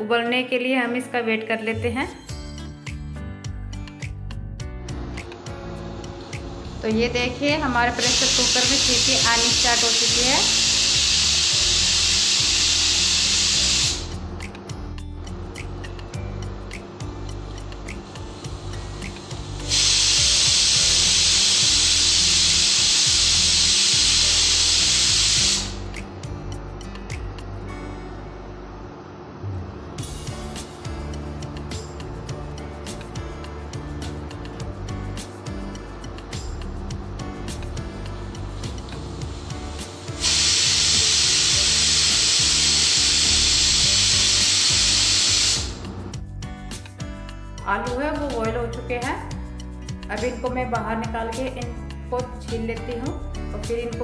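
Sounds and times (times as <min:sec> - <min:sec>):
pressure cooker whistle hissing: 0:08.0 - 0:14.2, 0:18.1 - 0:25.9, 0:39.1 - 0:46.0.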